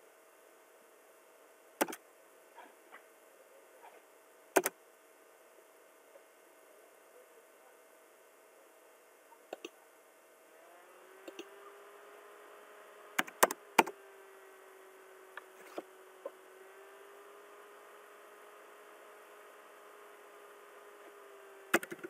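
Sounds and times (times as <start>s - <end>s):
faint steady hum: 0.0s - 22.0s
computer mouse clicks: 9.5s - 9.8s, 11.2s - 11.5s, 13.2s - 13.9s, 21.7s - 22.0s.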